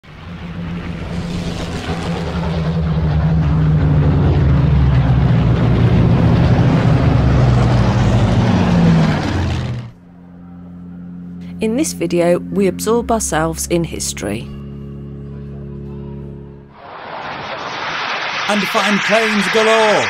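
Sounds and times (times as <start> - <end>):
dense rushing noise: 0.0 - 10.0, 16.8 - 20.0
engine drone: 0.0 - 20.0.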